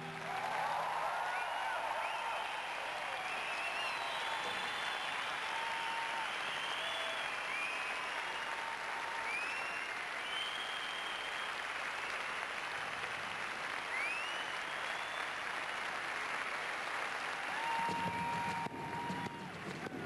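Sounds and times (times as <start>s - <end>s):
audience applauding: 0.0s - 20.0s
high whistles: 1.3s - 8.5s, 9.2s - 11.6s, 13.9s - 15.4s.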